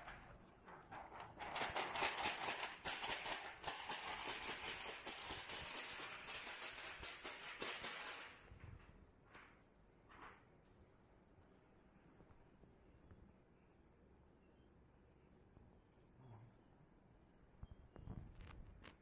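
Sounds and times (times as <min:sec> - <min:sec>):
plastic film crackling and rattling: 0:00.0 - 0:08.5.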